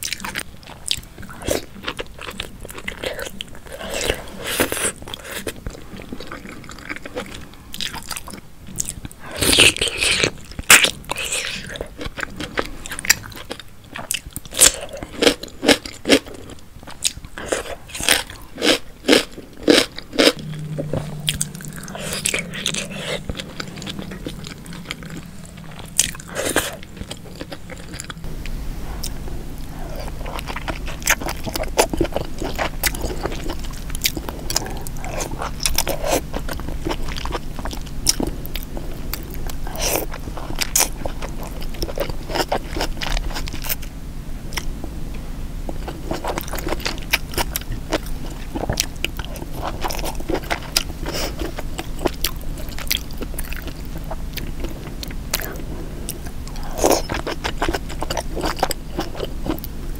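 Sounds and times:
chewing and wet mouth sounds: 0:00.0 - 0:43.9, 0:45.7 - 0:59.9.

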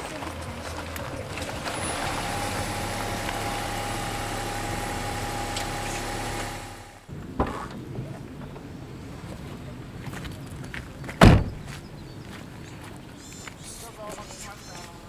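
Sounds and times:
minivan humming with whine: 0:00.1 - 0:07.1.

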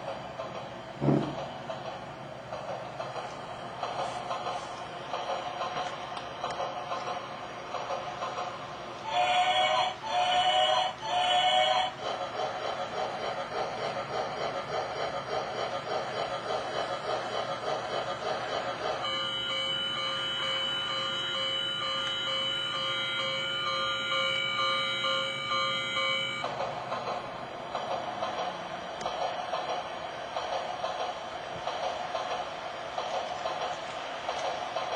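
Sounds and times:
locomotive chuffing: 0:00.0 - 0:34.9
steam whistle: 0:09.1 - 0:11.9, 0:19.0 - 0:26.4.

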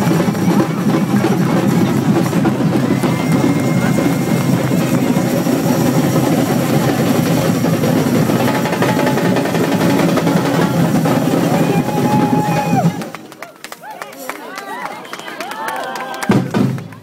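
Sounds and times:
drum band playing fast rhythm: 0:00.0 - 0:13.2, 0:16.3 - 0:16.9
high whistle tone: 0:02.7 - 0:06.7.

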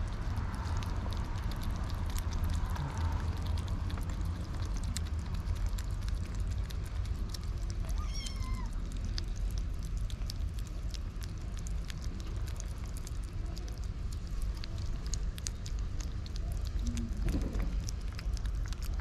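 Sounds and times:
kittens chewing and smacking: 0:00.0 - 0:19.0
low rumble: 0:00.0 - 0:19.0
kitten meow: 0:07.8 - 0:08.9.

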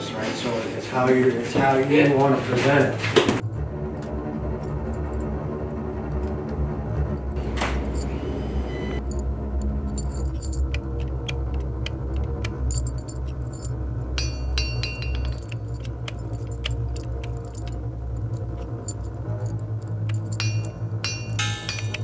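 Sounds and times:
low steady drone: 0:03.4 - 0:22.0
high tinkling clinks: 0:09.0 - 0:22.0
ringing chime cluster: 0:20.4 - 0:22.0.

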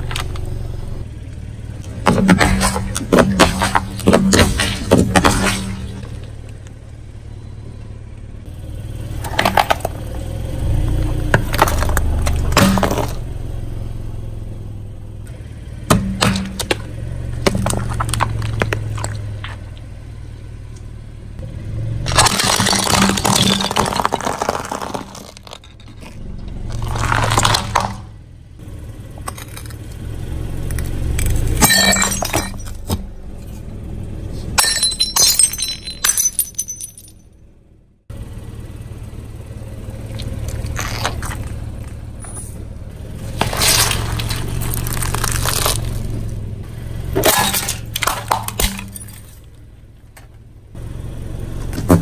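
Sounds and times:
car engine low hum: 0:00.0 - 0:52.0
tyre crushing objects: 0:01.9 - 0:06.2, 0:22.0 - 0:28.1, 0:43.2 - 0:46.3.

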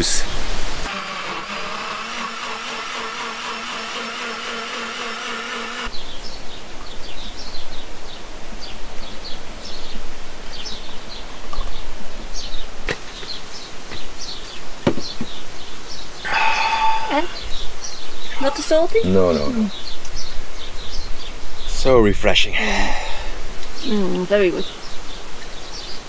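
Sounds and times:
blender motor whining: 0:00.8 - 0:05.9.

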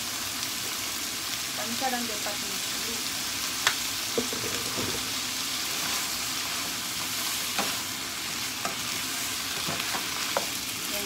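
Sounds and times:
vegetables sizzling in a frying pan: 0:00.0 - 0:11.0
wooden spoon knocking pan: 0:04.2 - 0:05.0.

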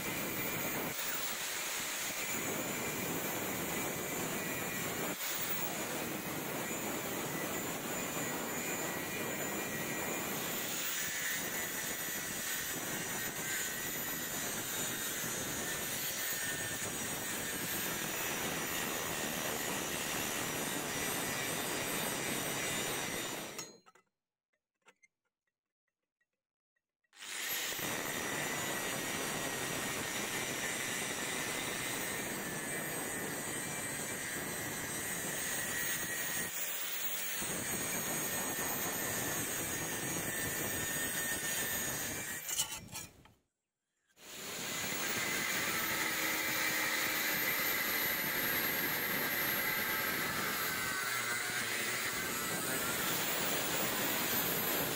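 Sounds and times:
angle grinder cutting steel: 0:00.0 - 0:24.0, 0:27.2 - 0:43.3, 0:44.2 - 0:54.9.

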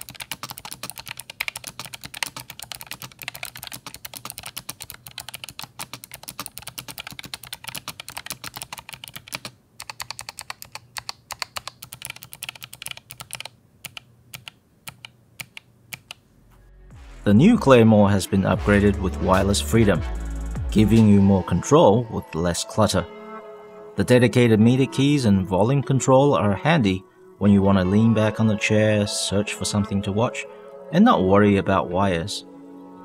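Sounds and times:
fast clicky keyboard typing: 0:00.0 - 0:16.2.

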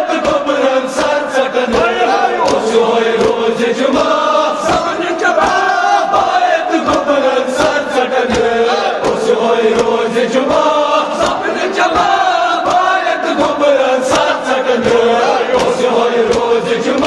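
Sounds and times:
men chanting in unison: 0:00.0 - 0:17.0
chest-beating slaps: 0:01.0 - 0:03.4.

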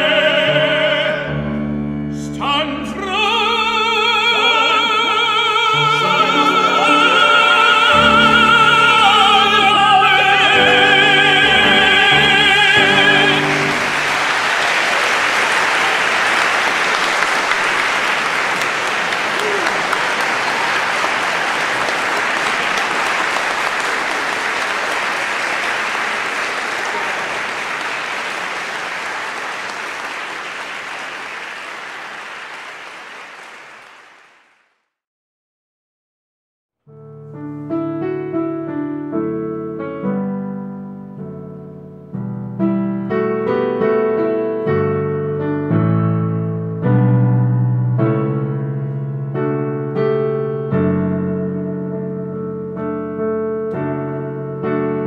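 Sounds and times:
piano music: 0:00.0 - 0:18.1, 0:36.9 - 0:55.0
audience applauding: 0:04.2 - 0:34.7.

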